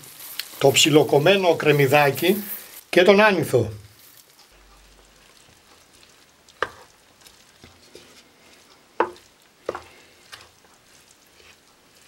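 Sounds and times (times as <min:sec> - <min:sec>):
spoon stirring rice in a pan: 0:03.9 - 0:12.0
spoon knocking against pan: 0:09.0 - 0:09.9.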